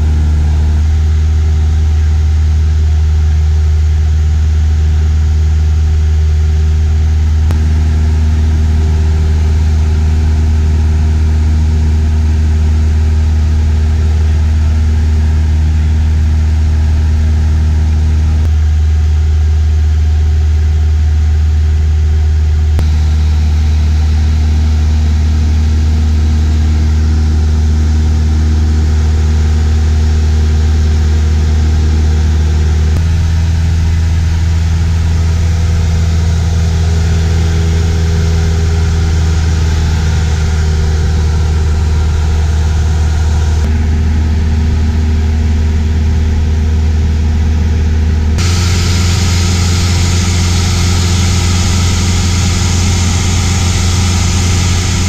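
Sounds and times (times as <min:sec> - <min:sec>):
plane engine and propeller drone: 0:00.0 - 0:18.7, 0:22.8 - 0:55.0
wind hiss: 0:48.4 - 0:55.0.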